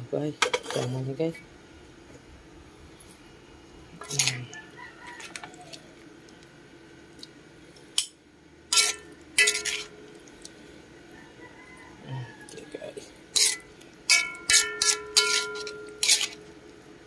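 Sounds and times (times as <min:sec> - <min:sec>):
metal spatula clanking on wok: 0:08.7 - 0:10.0, 0:13.4 - 0:16.4.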